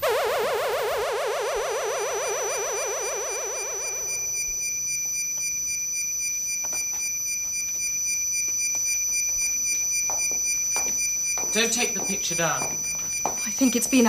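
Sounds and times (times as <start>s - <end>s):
high-pitched whine: 0.0s - 14.0s
footsteps: 6.5s - 14.0s.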